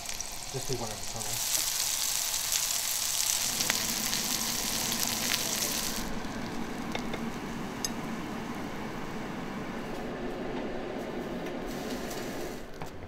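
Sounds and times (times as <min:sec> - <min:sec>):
patties sizzling in oil: 0:00.0 - 0:09.6
steady low hum: 0:03.4 - 0:13.0.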